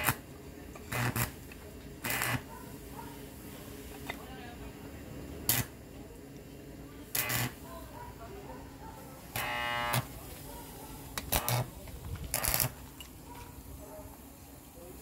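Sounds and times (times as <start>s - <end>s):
welding arc crackling: 0.0s - 0.3s, 0.9s - 2.5s, 5.4s - 5.8s, 7.1s - 7.6s, 9.3s - 10.2s, 11.2s - 13.0s.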